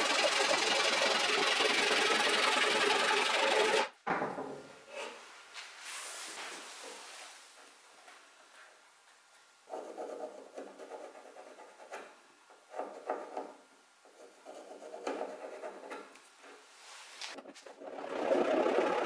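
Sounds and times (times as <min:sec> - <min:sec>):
pencil scratching on wood: 0:09.7 - 0:12.1, 0:14.1 - 0:16.1.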